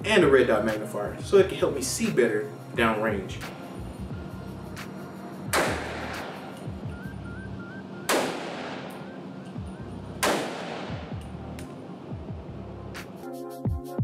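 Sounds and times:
background music: 0.0s - 14.0s
gunshots echoing indoors: 5.5s - 6.5s, 8.1s - 9.1s, 10.2s - 11.2s.

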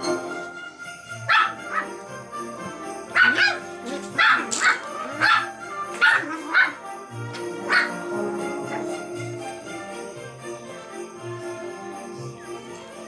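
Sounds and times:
background music: 0.0s - 13.0s
puppies yapping: 1.2s - 1.9s, 3.1s - 6.9s, 7.6s - 9.0s.

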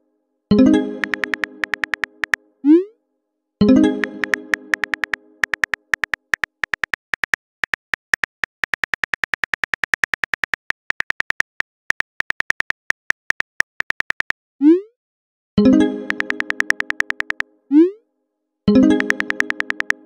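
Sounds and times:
phone keyboard tap clicks: 1.0s - 2.4s, 4.0s - 14.3s, 16.1s - 17.4s, 18.9s - 20.0s.

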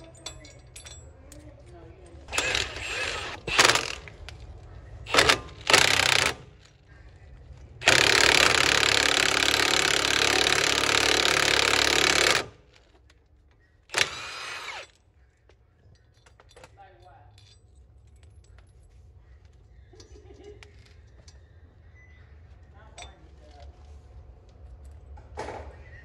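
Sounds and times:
impact wrench hammering: 2.3s - 4.0s, 5.1s - 6.5s, 7.8s - 12.6s, 13.9s - 14.8s.

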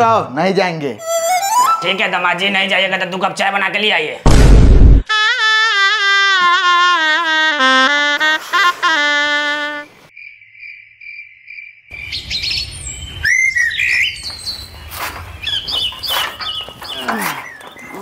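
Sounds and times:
saxophone-like musical phrase: 1.0s - 1.9s, 5.1s - 10.0s
insect trill: 10.1s - 12.0s
birds chirping: 10.5s - 18.0s.

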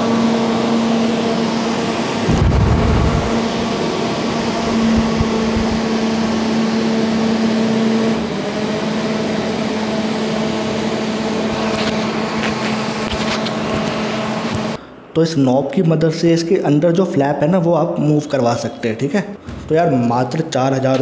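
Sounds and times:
air cooler fan hum: 0.0s - 16.4s
air rushing through grille: 2.0s - 6.5s
low thump: 2.3s - 3.4s.

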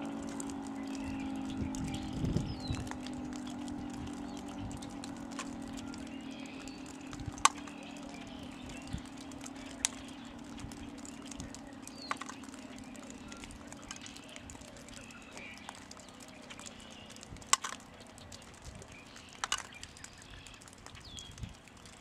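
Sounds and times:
warning siren low tone: 0.0s - 17.4s
sharp clicks: 0.1s - 22.0s
bird chirps: 0.7s - 21.5s.

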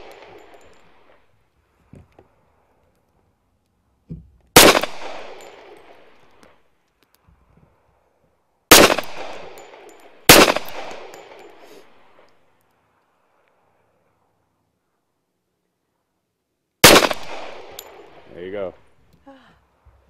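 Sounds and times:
pistol shots with echo: 4.6s - 6.0s, 8.7s - 11.5s, 16.8s - 18.2s.

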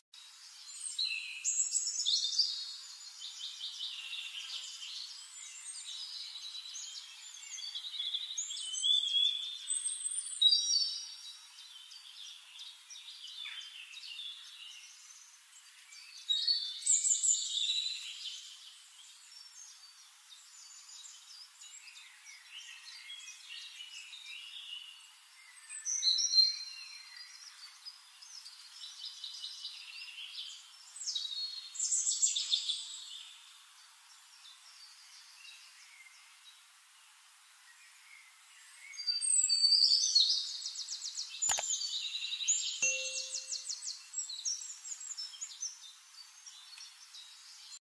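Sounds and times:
birds chirping and trilling: 38.8s - 47.8s.

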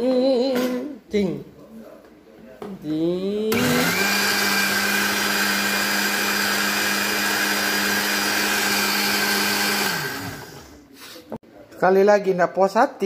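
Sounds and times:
blender motor hum and whine: 3.5s - 10.8s
liquid churning in blender jug: 3.6s - 10.7s.

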